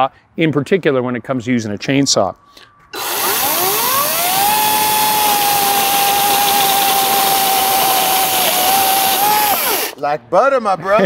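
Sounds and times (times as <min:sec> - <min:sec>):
chainsaw whining: 0:03.0 - 0:10.0
chain cutting wooden board: 0:03.2 - 0:10.0.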